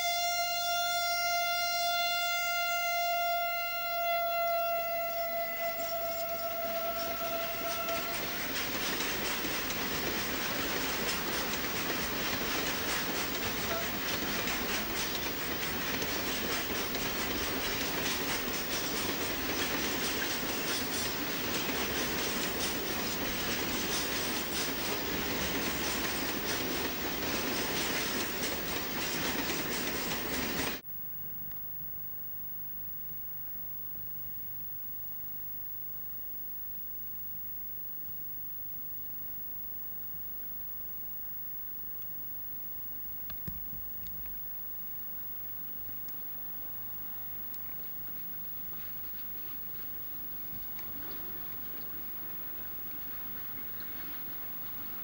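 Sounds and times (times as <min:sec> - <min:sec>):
freight train wheels on rails: 0:05.2 - 0:30.8, 0:46.6 - 0:55.0
clickety-clack over rail joints: 0:06.7 - 0:30.8, 0:46.7 - 0:55.0.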